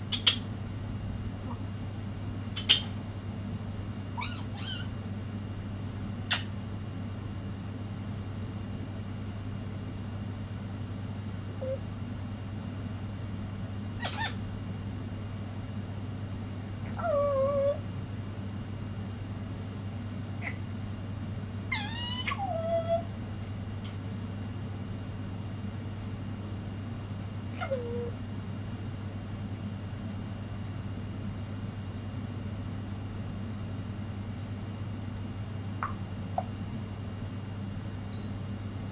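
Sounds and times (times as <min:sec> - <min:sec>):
parrot whistled calls: 0:04.2 - 0:04.9, 0:21.7 - 0:23.0, 0:38.1 - 0:38.4.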